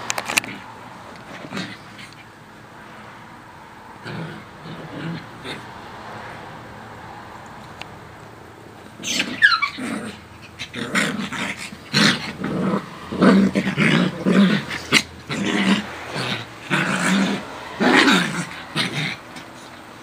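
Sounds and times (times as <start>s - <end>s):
dogs growling: 0.4s - 2.3s, 4.0s - 6.3s, 8.8s - 20.0s
dog high cry: 9.0s - 10.8s.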